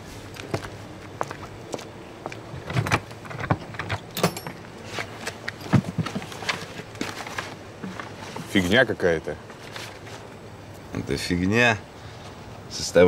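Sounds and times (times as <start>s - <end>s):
hands rummaging through crate: 2.6s - 8.8s, 9.5s - 10.3s.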